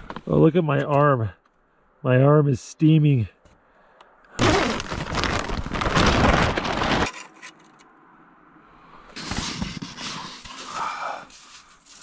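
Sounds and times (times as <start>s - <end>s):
tent zipper pulled open: 4.4s - 7.1s.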